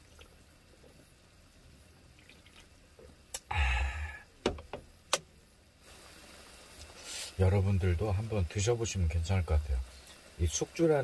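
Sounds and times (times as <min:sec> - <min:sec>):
drinking and breathing: 0:03.4 - 0:04.3, 0:09.9 - 0:10.3
can knocking on wooden table: 0:04.4 - 0:04.9.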